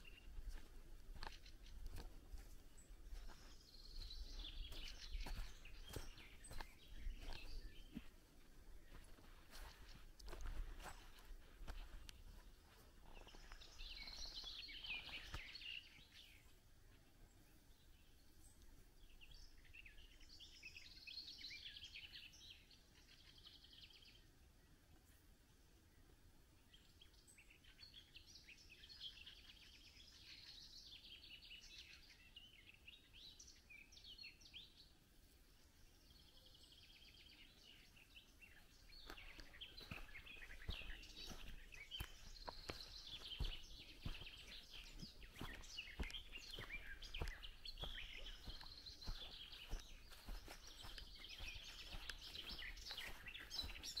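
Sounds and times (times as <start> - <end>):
footsteps on dirt path: 0.0 - 16.3, 37.1 - 54.0
songbirds chirping: 0.0 - 54.0.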